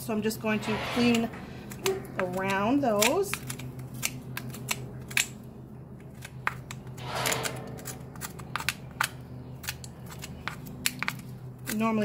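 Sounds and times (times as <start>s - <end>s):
hoof pick scraping a hoof: 0.5s - 2.6s.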